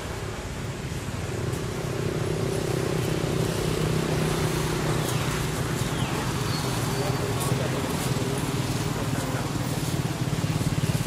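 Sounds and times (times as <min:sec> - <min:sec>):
vehicle engine hum: 0:00.0 - 0:11.0.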